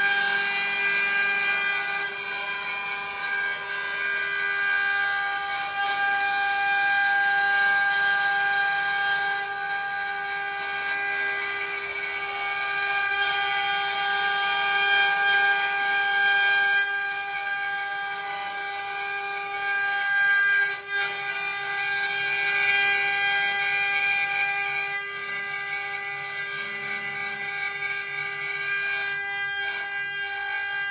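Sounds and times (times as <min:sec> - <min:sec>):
high whine of router spindles: 0:00.0 - 0:07.4.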